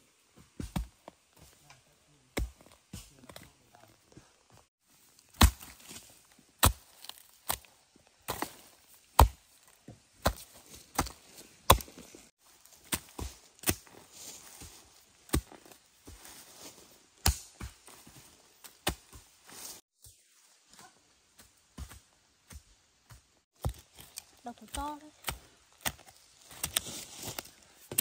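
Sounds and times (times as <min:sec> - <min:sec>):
hand tool chopping into ground: 0:00.6 - 0:01.0, 0:02.3 - 0:03.4, 0:05.3 - 0:12.1, 0:12.7 - 0:19.8, 0:21.8 - 0:28.0.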